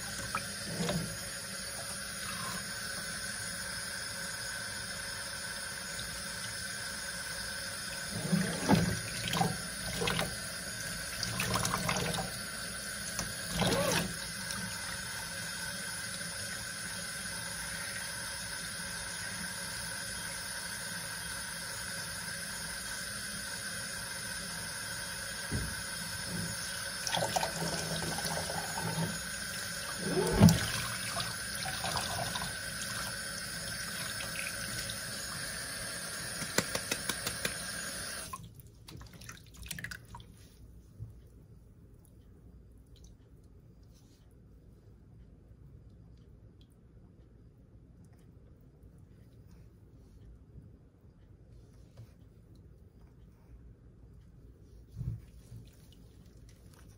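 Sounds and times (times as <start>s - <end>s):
water running into metal sink: 0.0s - 3.4s, 5.5s - 19.3s, 25.2s - 38.4s.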